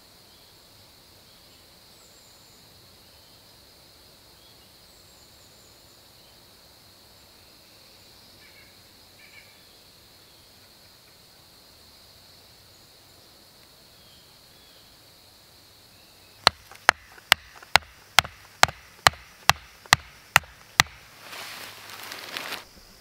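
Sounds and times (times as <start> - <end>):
hammering wooden stake into ground: 16.4 - 21.2.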